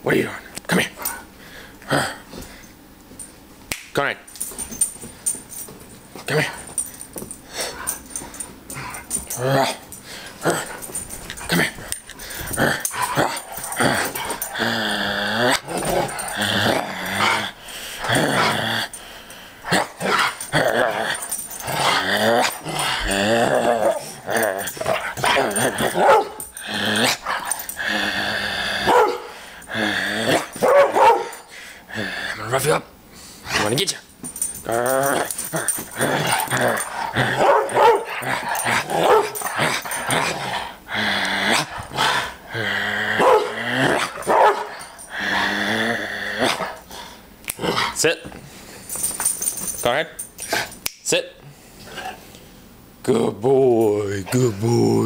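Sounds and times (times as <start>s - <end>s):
dog growling in play: 6.2s - 32.6s, 34.5s - 48.1s
dog barking: 26.0s - 26.4s, 28.9s - 29.3s, 30.6s - 31.4s, 37.4s - 38.1s, 39.0s - 39.4s, 43.2s - 43.5s, 44.3s - 44.7s.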